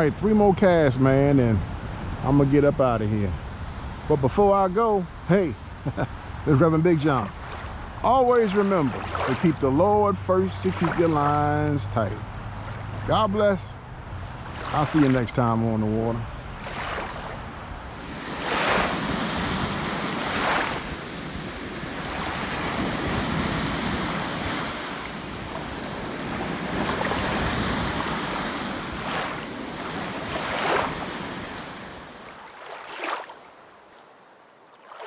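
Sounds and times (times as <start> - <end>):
waves breaking on shore: 1.7 - 35.0
wind on microphone: 12.2 - 32.2.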